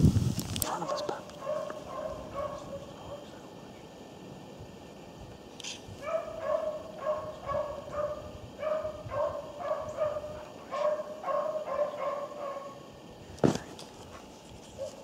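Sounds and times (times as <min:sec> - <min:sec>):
dog baying: 0:00.9 - 0:03.2, 0:06.0 - 0:12.8.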